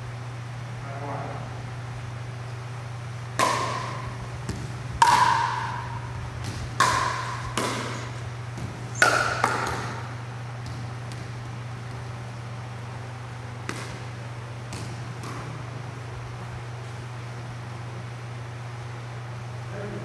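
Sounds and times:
paddles striking plastic ball: 0:03.4 - 0:12.1, 0:13.6 - 0:15.6.

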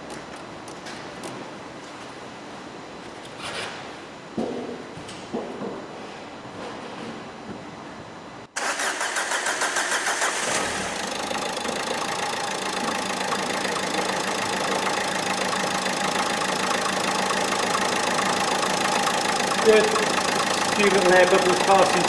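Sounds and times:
diesel engine cranking: 0:08.6 - 0:22.0
diesel engine idling: 0:08.6 - 0:22.0.

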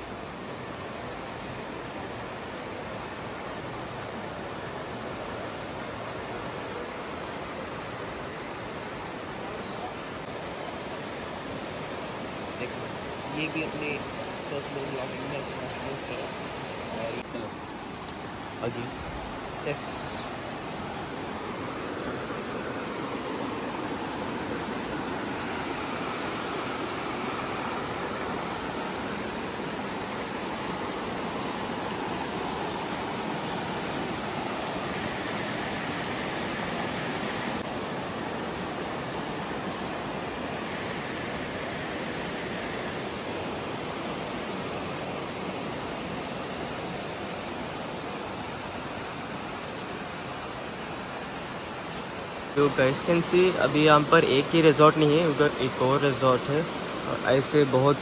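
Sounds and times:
river rushing over boulders: 0:00.0 - 0:58.0.

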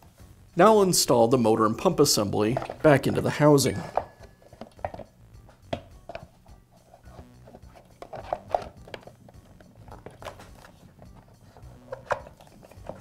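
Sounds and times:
plastic and metal clicks and knocks: 0:02.5 - 0:05.1, 0:07.9 - 0:10.8, 0:11.6 - 0:13.0.

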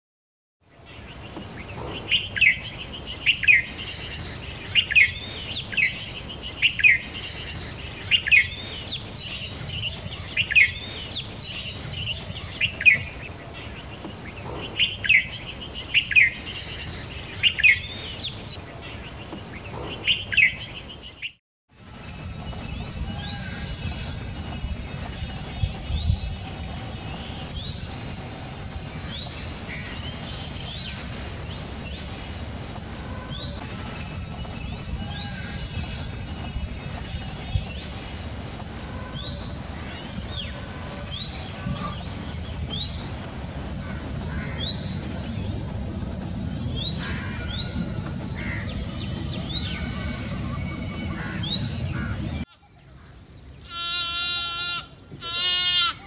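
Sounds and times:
small birds chirping: 0:00.8 - 0:53.8
peafowl alarm calls: 0:22.4 - 0:45.8, 0:46.4 - 0:52.4.

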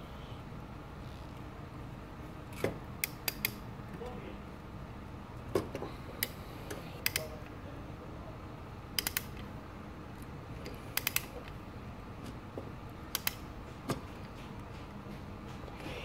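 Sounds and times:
pliers clicking on metal pipe: 0:11.0 - 0:11.3.

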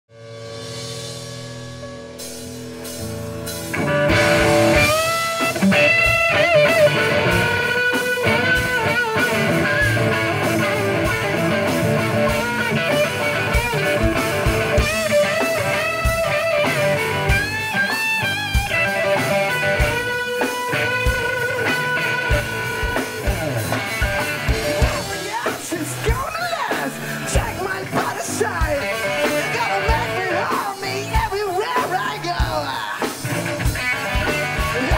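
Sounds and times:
rock band playing: 0:00.1 - 0:34.9
lead guitar bending notes: 0:00.8 - 0:25.5, 0:33.2 - 0:34.9.

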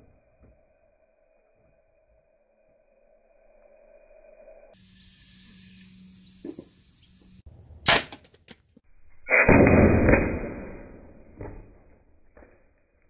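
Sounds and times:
air gun sharp crack: 0:07.8 - 0:08.3, 0:09.2 - 0:11.0.

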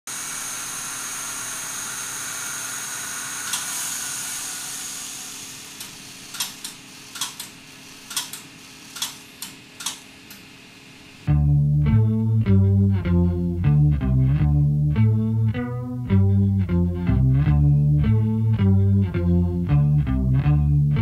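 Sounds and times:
tape machine whir and whine: 0:00.1 - 0:11.3
sharp clicks: 0:05.8 - 0:10.4.

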